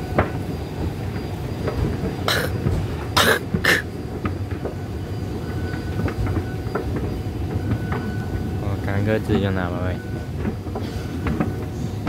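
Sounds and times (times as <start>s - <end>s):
person coughing: 2.3s - 2.6s, 3.2s - 3.9s.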